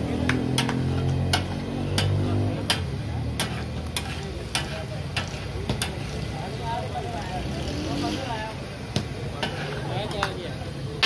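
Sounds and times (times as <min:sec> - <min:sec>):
metal spatula clanking on griddle: 0:00.4 - 0:06.1, 0:09.4 - 0:10.4.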